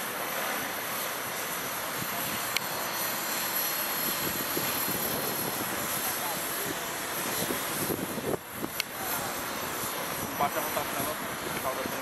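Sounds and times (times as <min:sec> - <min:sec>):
model helicopter buzzing drone: 0:00.0 - 0:12.0.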